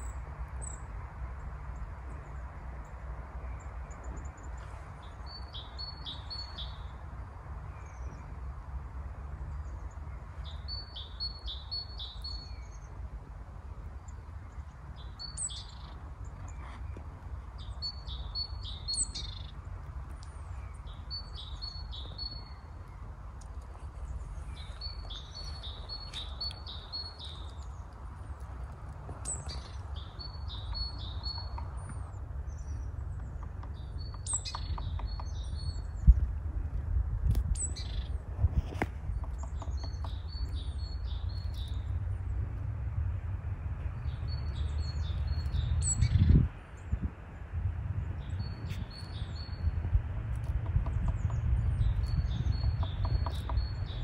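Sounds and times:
songbirds singing: 0:00.0 - 0:54.0.

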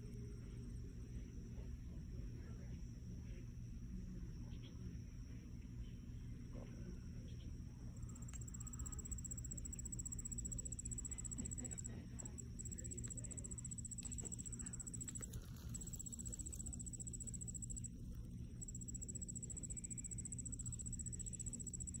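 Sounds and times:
insect trilling: 0:08.0 - 0:22.0.

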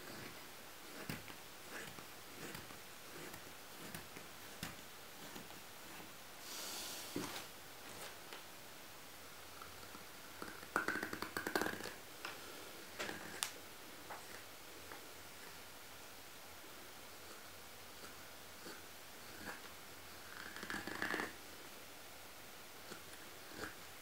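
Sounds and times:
knife scraping wood: 0:00.0 - 0:06.2.

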